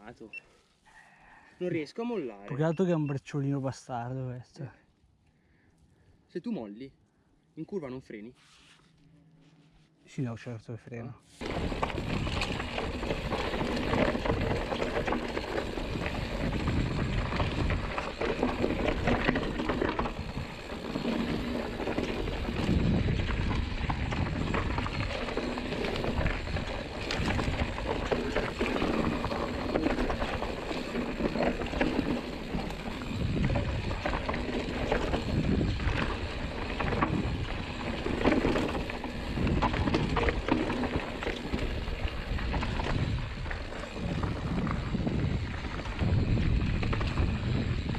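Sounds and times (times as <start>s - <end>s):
bike clattering over bumps: 11.4s - 47.9s
tyres crunching over gravel: 11.4s - 47.9s.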